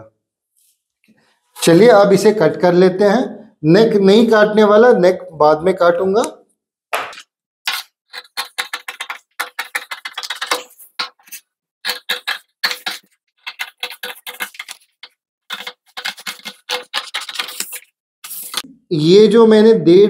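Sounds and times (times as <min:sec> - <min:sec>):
scissors snipping paper: 0:07.7 - 0:18.6.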